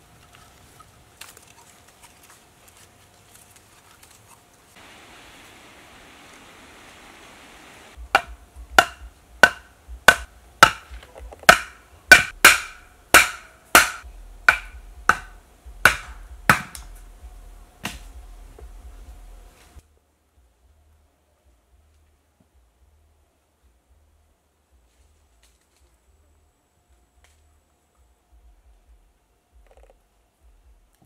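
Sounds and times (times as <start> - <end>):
faint steady hiss: 0.0 - 31.0
sharp ringing knocks: 11.5 - 16.8.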